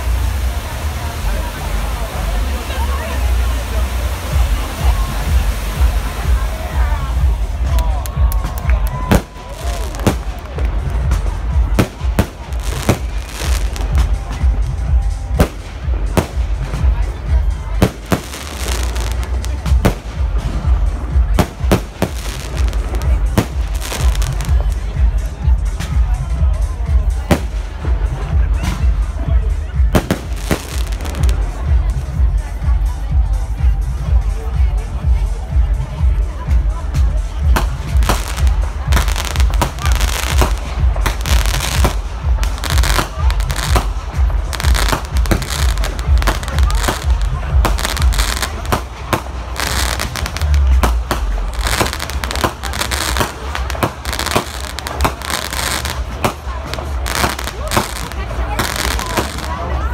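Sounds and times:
crackling hiss: 0:00.0 - 0:25.7, 0:37.6 - 0:59.6
fireworks bursting: 0:03.4 - 0:26.0, 0:27.0 - 0:32.1, 0:37.3 - 0:59.9.

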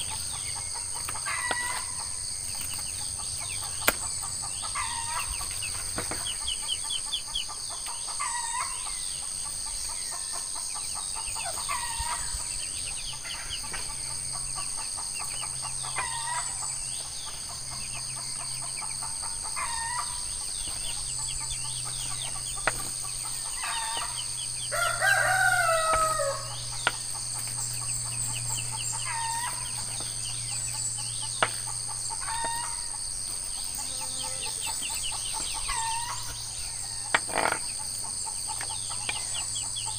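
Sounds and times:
high-pitched insect chorus: 0:00.0 - 0:39.9
rooster crowing: 0:23.5 - 0:26.8, 0:28.8 - 0:29.8, 0:32.2 - 0:33.0, 0:35.6 - 0:37.2.

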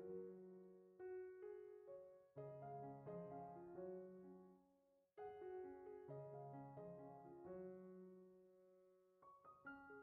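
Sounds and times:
soft piano music: 0:00.0 - 0:10.0.

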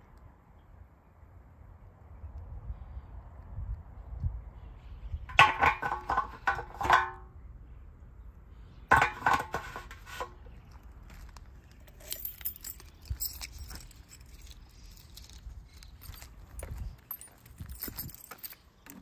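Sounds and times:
metal fuel cap clinking and scraping: 0:05.3 - 0:07.2, 0:08.9 - 0:10.4.

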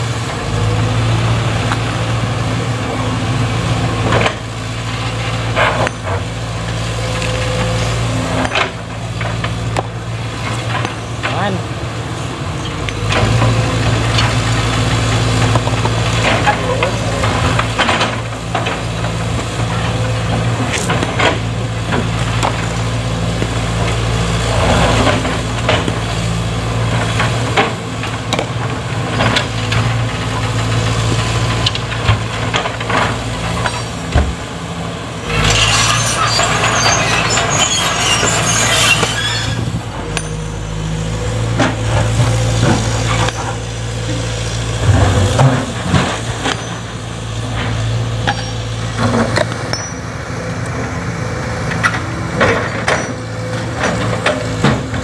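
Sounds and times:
excavator diesel engine running: 0:00.0 - 0:55.0.

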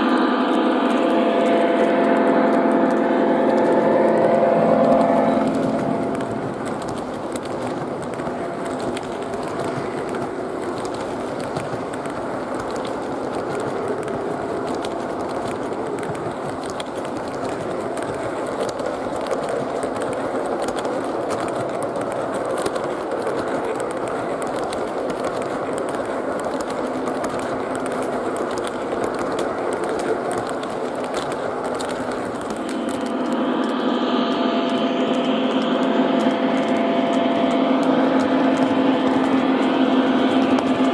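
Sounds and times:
model locomotive hum: 0:00.0 - 0:40.9
model train wheels clattering: 0:00.0 - 0:40.9.

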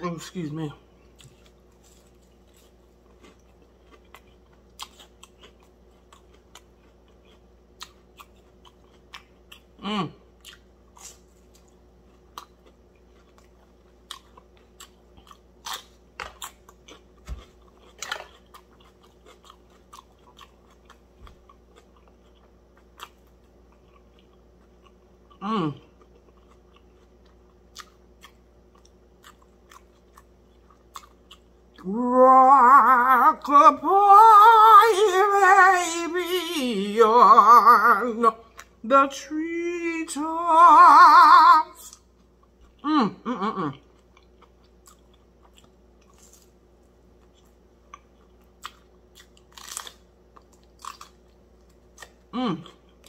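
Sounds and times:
person chewing crunchy food: 0:00.6 - 0:38.8, 0:40.8 - 0:53.0
person humming briefly: 0:42.8 - 0:43.8, 0:52.4 - 0:52.7.

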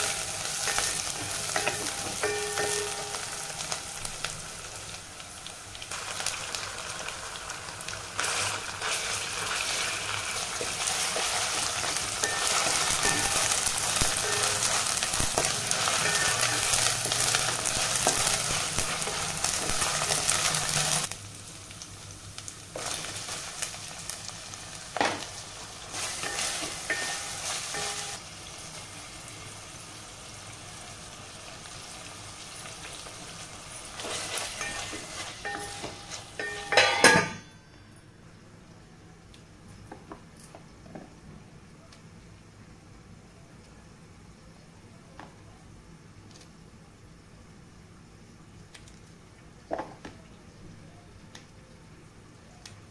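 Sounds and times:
food sizzling in oil: 0:00.0 - 0:37.4.

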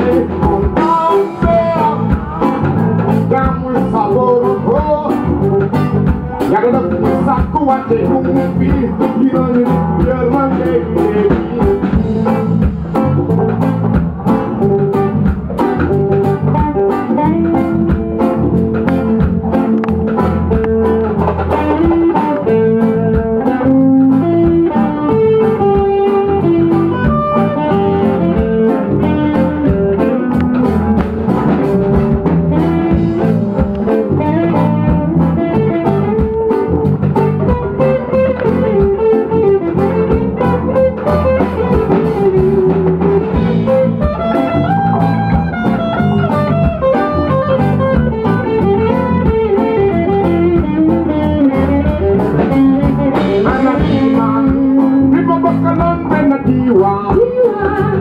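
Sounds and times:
drum kit steady beat: 0:00.0 - 0:58.0
electric guitar lead line: 0:00.0 - 0:58.0.

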